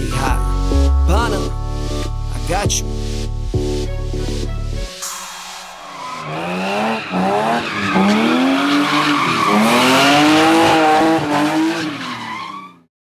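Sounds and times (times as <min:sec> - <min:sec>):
car engine revving: 0:05.0 - 0:12.0.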